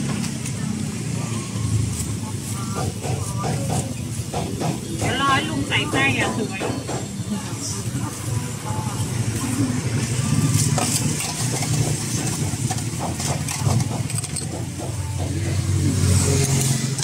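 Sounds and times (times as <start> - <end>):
vehicle engine rumbling: 0.0 - 17.0
utensils clicking and clinking: 10.5 - 15.4, 16.2 - 17.0.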